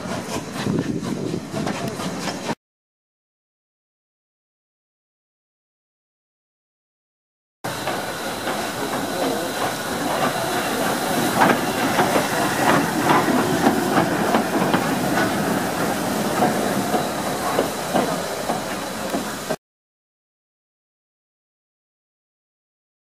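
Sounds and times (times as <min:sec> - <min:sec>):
steam locomotive hissing: 0:00.0 - 0:02.6, 0:07.7 - 0:19.6
wheels clanking and knocking: 0:07.8 - 0:19.6.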